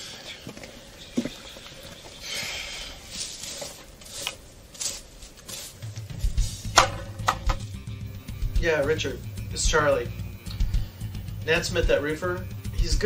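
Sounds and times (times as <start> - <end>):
footsteps on dry forest floor: 0.2 - 6.7
music with low notes: 5.8 - 13.0.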